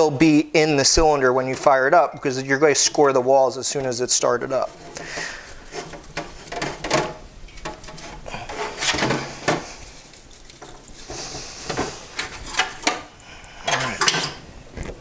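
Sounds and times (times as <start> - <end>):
paper towel rubbing metal: 0.9 - 12.5
metal knocking in a steel sink: 4.7 - 9.7.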